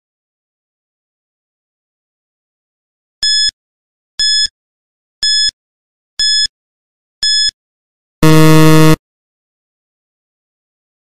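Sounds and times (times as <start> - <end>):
high-pitched countdown beeps: 4.2 - 4.5, 5.2 - 5.5, 6.2 - 6.5, 7.2 - 7.5, 8.2 - 9.0
low buzzer: 8.2 - 9.0.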